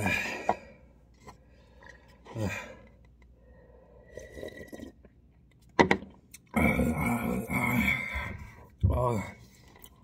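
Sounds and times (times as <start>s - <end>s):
person slurping noodles: 4.0s - 5.1s.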